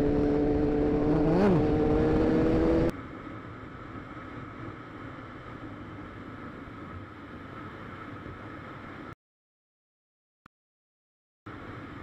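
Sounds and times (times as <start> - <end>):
wind and road rumble: 0.0 - 9.2.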